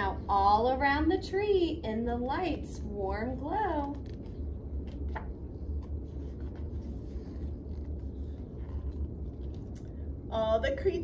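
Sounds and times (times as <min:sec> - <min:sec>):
low room hum: 0:00.0 - 0:11.0
paper rustling: 0:03.9 - 0:09.8.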